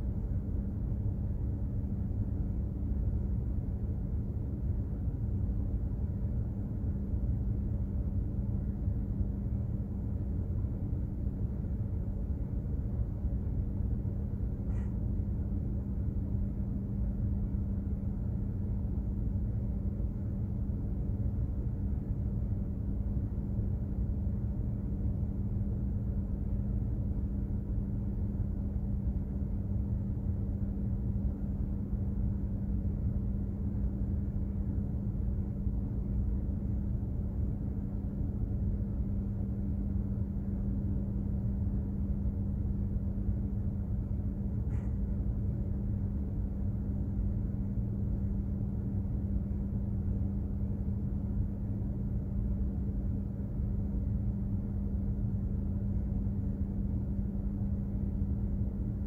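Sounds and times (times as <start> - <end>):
constant hum: 0.0 - 59.0.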